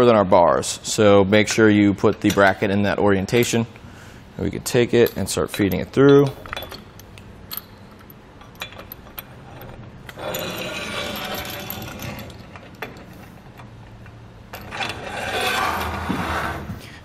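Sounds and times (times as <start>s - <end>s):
hardware scraping along track: 14.6s - 16.8s.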